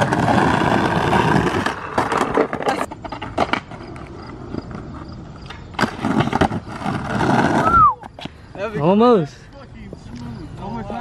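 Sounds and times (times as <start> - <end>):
skateboard clicks and knocks: 0.0 - 8.4
skateboard wheels rolling on concrete: 0.0 - 11.0.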